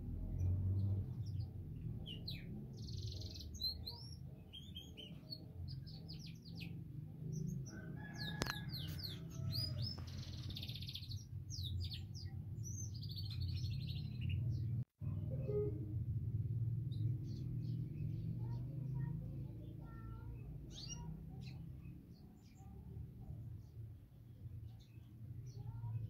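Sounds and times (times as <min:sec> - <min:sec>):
low steady rumble: 0:13.8 - 0:20.2
canary singing: 0:16.9 - 0:22.7.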